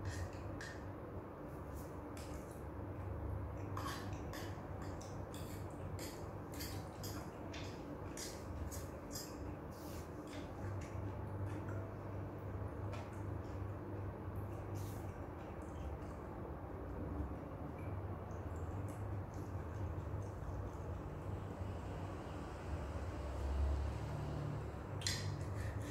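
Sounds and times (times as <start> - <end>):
low steady hum: 0.0 - 25.9
utensils scraping a plate: 3.8 - 7.3.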